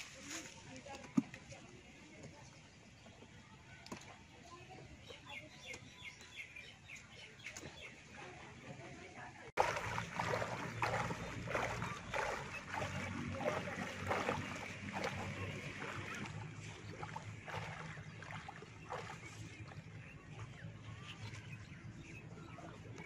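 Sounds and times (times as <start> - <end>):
water sloshing from wading: 7.0 - 23.0.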